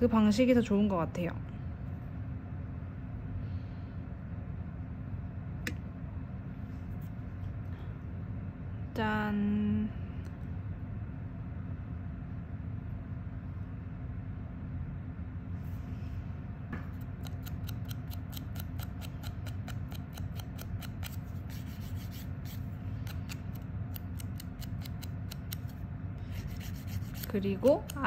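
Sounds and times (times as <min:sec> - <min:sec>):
cuticle nippers snipping clicks: 0:17.0 - 0:21.2, 0:23.0 - 0:25.8, 0:27.2 - 0:28.0.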